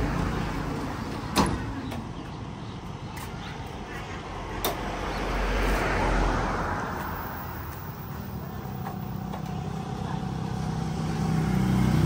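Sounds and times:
vehicle engine hum: 0.0 - 12.0
vehicle passing with rushing: 3.6 - 12.0.

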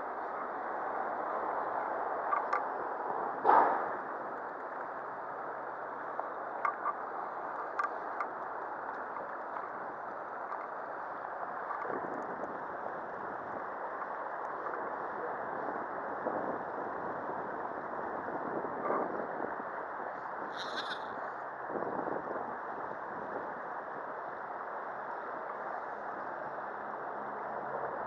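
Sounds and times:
faint clicks: 2.3 - 2.7, 6.2 - 10.9.

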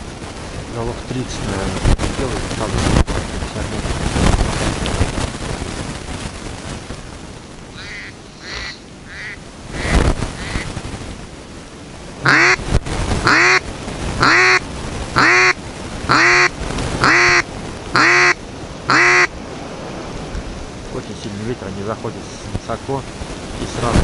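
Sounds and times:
wind gusts on microphone: 0.0 - 24.0
duck quacking: 7.8 - 10.7, 12.2 - 12.6, 13.2 - 13.6, 14.2 - 14.6, 15.2 - 19.3.

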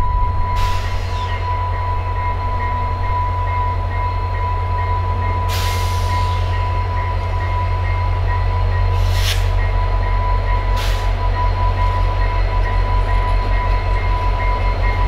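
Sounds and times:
diesel locomotive rumbling: 0.0 - 15.0
air hissing: 9.0 - 9.5.

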